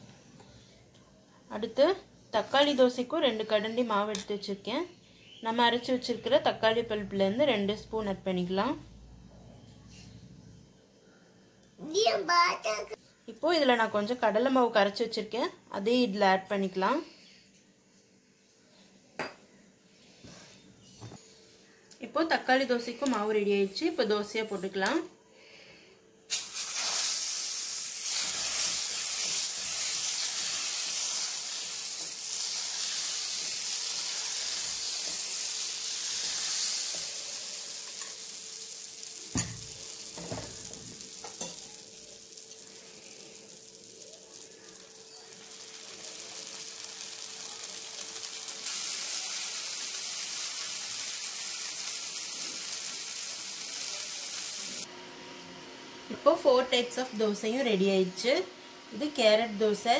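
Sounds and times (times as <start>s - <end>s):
batter sizzling on a hot pan: 26.3s - 54.9s.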